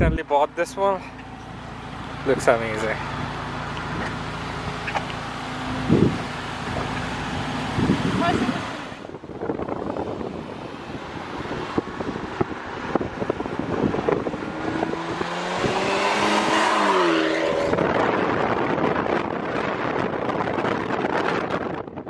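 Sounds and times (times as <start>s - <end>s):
wind noise on microphone: 0.0s - 0.3s, 5.6s - 22.0s
car engine pulling away: 0.9s - 21.0s.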